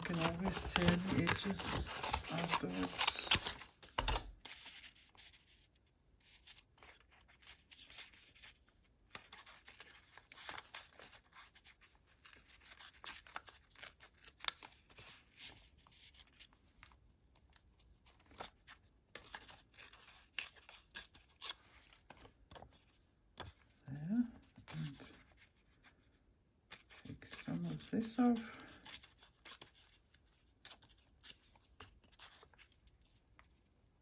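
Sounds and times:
paper tearing: 0.0 - 3.8, 9.1 - 15.1
paper rustling: 0.0 - 8.6.

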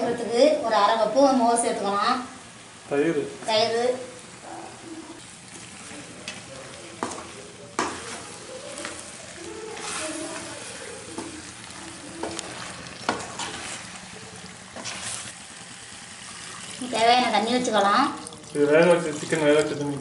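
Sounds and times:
pan sizzling: 0.0 - 20.0
spatula stirring in pan: 5.1 - 17.4.

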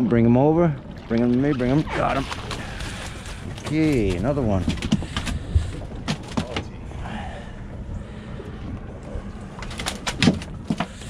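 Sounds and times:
wind and water rumble: 0.0 - 11.0
knocks and clicks on boat: 2.0 - 6.8, 9.6 - 11.0.

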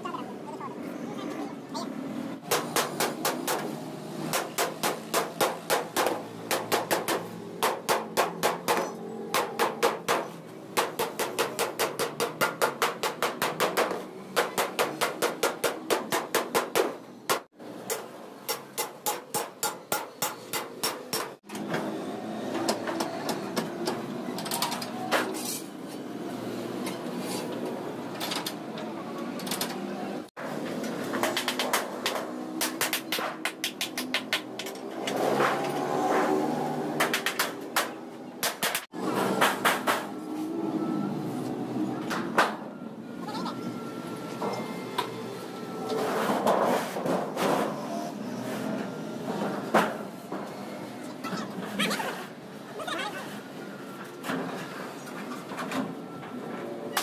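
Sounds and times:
workshop noise: 0.0 - 57.0.

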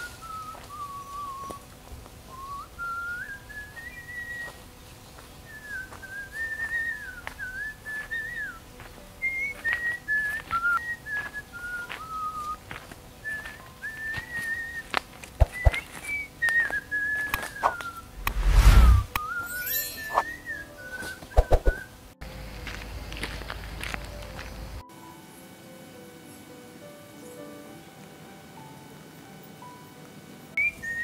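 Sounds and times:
person whistling a tune: 0.0 - 1.6, 2.3 - 4.6, 5.5 - 8.6, 9.2 - 21.9, 30.6 - 31.0.

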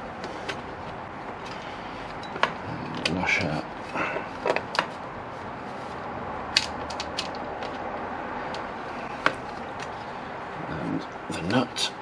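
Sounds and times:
steady background hiss: 0.0 - 12.0.

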